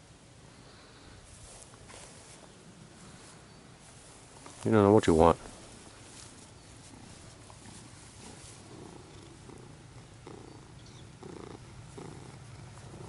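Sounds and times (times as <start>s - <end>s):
cat purring: 6.2s - 13.0s.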